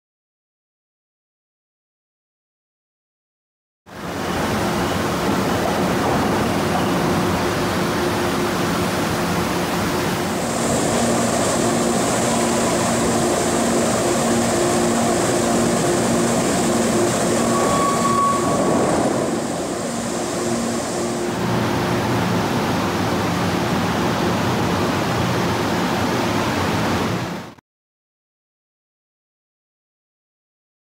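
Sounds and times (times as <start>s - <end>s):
industrial machinery rumble: 3.9s - 27.4s
high hiss: 8.4s - 22.4s
brief high tone: 10.3s - 22.2s.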